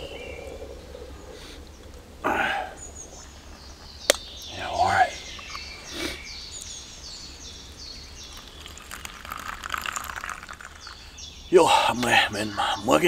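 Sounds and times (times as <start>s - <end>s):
bird chirping: 0.0s - 13.0s
coffee pouring into a mug: 8.2s - 11.1s.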